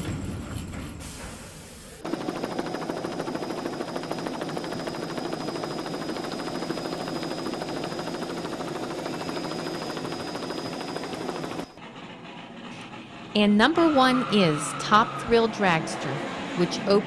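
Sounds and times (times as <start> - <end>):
helicopter rotor chopping: 2.0 - 17.0.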